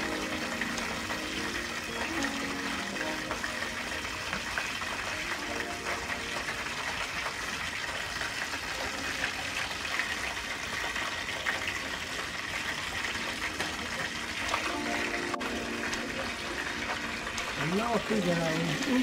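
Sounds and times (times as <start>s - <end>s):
faint tune: 0.0s - 7.2s, 13.0s - 19.0s
oil sizzling in a frying pan: 0.0s - 19.0s.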